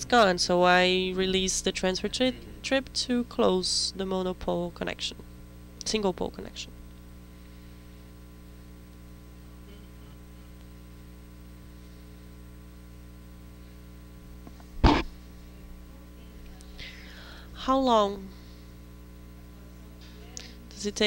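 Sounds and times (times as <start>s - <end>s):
electrical mains hum: 0.0s - 21.0s
microphone handling thump: 14.5s - 15.2s.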